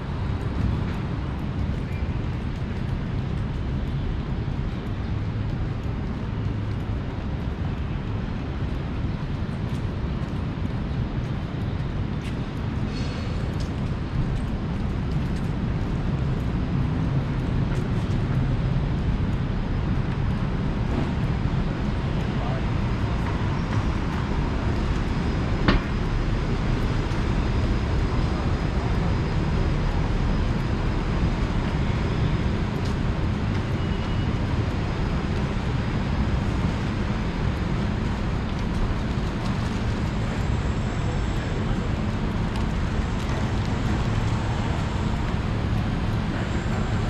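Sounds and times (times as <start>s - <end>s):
road traffic passing: 15.7s - 47.0s.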